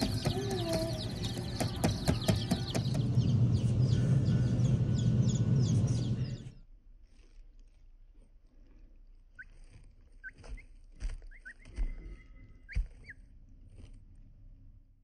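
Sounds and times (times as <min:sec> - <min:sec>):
chicks peeping: 0:00.0 - 0:06.6, 0:09.3 - 0:13.2.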